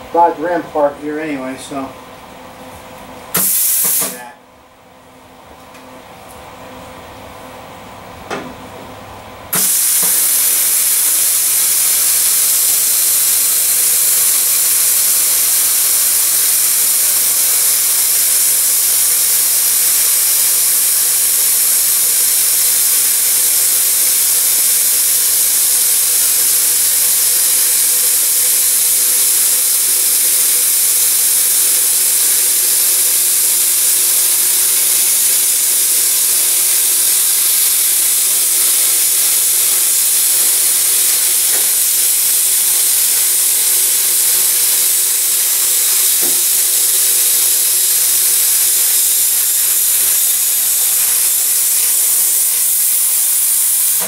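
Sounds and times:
plasma cutter hissing: 3.3s - 4.4s, 9.5s - 54.0s.

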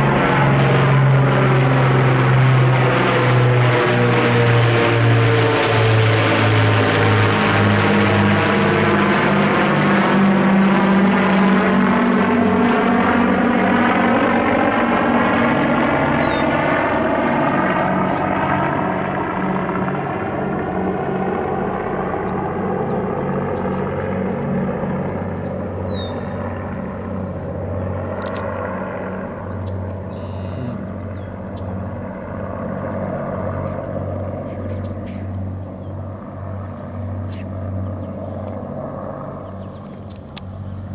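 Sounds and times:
propeller plane engines droning: 0.0s - 40.9s.

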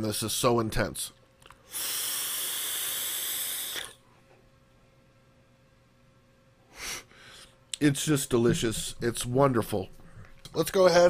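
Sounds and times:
vape airy hiss: 1.7s - 4.0s.

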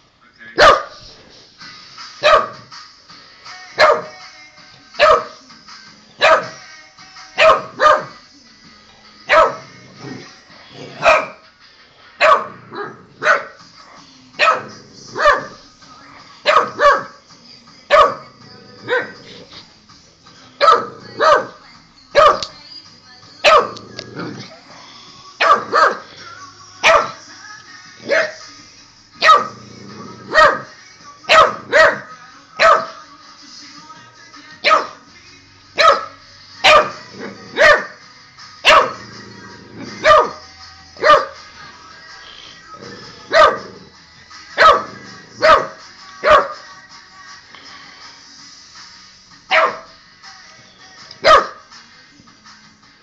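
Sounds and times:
faint tv music: 0.0s - 53.0s
puppy barking: 0.6s - 1.0s, 2.2s - 2.6s, 3.8s - 4.2s, 5.0s - 5.4s, 6.2s - 6.6s, 7.4s - 8.2s, 9.3s - 9.7s, 11.0s - 11.4s, 12.2s - 13.6s, 14.4s - 15.6s, 16.4s - 17.2s, 17.9s - 18.3s, 20.6s - 21.6s, 22.2s - 22.5s, 23.4s - 23.8s, 25.4s - 26.1s, 26.8s - 27.2s, 28.0s - 28.4s, 29.2s - 29.6s, 30.3s - 30.7s, 31.3s - 33.0s, 34.6s - 35.0s, 35.8s - 38.0s, 38.6s - 39.0s, 40.0s - 40.4s, 41.0s - 41.4s, 43.3s - 43.8s, 44.6s - 46.6s, 49.5s - 49.9s, 51.2s - 51.6s.

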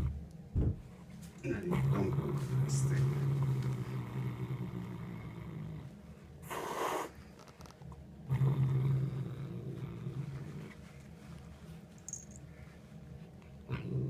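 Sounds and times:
cat growling: 1.5s - 7.2s, 8.2s - 10.7s, 13.7s - 14.0s
cat hissing: 6.4s - 7.2s.

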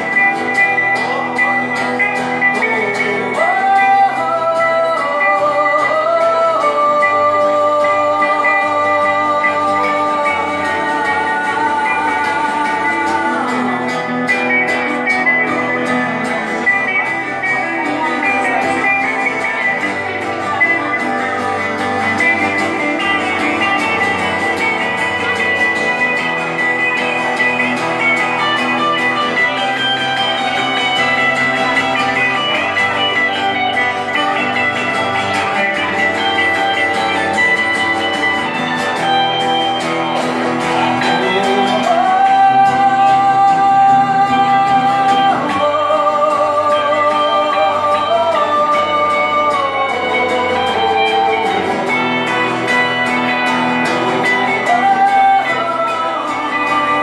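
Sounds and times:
acoustic guitar: 0.0s - 57.0s
electric guitar: 0.0s - 57.0s.

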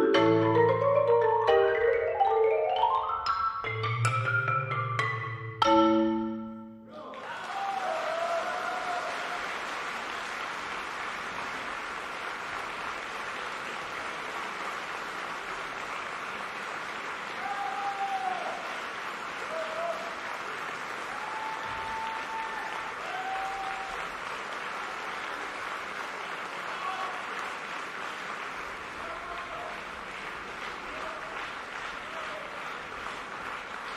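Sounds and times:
people shouting: 6.9s - 9.1s, 17.4s - 18.6s
audience applauding: 6.9s - 33.9s.

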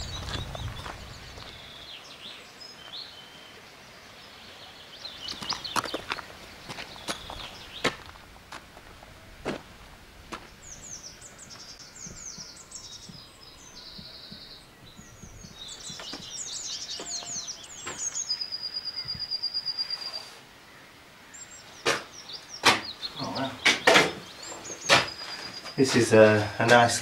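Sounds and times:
songbirds singing: 0.0s - 27.0s
sharp knocks: 21.8s - 22.9s, 23.6s - 25.2s.

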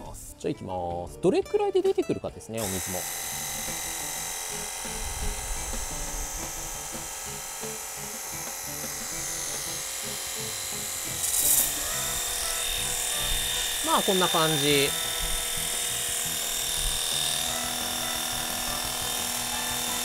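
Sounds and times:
pressure washer motor whine: 2.6s - 20.0s
water spray hiss: 10.4s - 15.8s.

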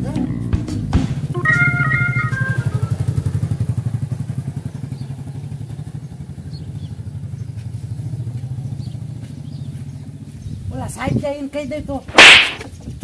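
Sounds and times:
motorcycle engine chugging: 1.2s - 10.4s.

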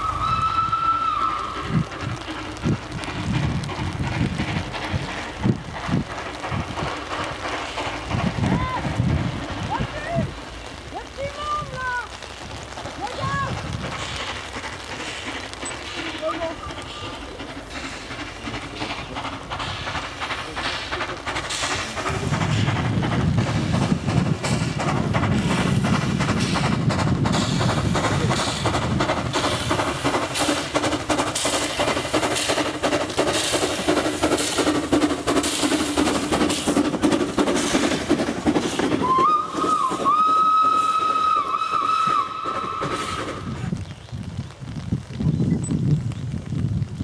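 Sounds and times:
steam locomotive chuffing: 0.0s - 43.8s
steam whistle blast: 39.0s - 43.3s.

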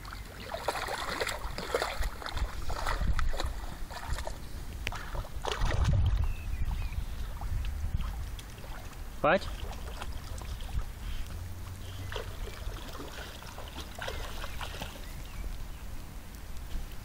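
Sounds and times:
dog splashing through water: 0.0s - 6.3s, 7.3s - 15.4s
wind rumble on microphone: 0.0s - 17.0s.

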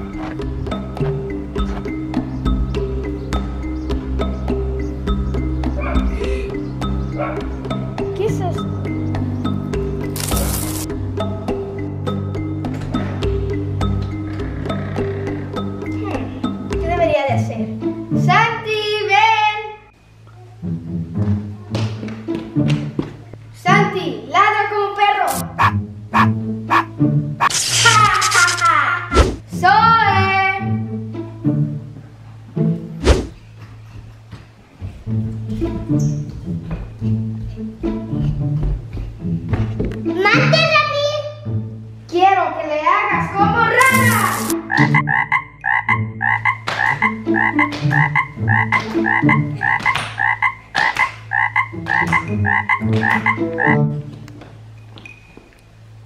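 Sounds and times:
background music: 0.0s - 56.0s
frog croaking: 13.9s - 16.6s, 25.3s - 28.7s, 43.8s - 53.8s
brief hiss: 27.4s - 28.8s.

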